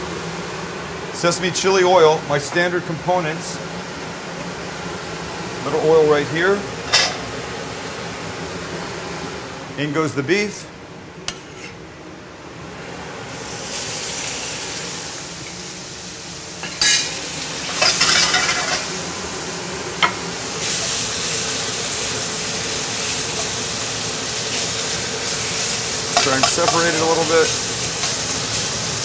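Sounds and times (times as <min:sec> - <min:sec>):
beef sizzling in a wok: 0:13.3 - 0:29.0.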